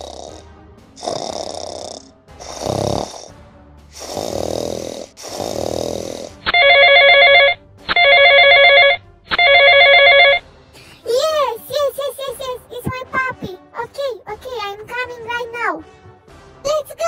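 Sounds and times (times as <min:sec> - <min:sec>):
breathy puffs: 0:00.0 - 0:06.5
telephone ringing: 0:06.5 - 0:10.4.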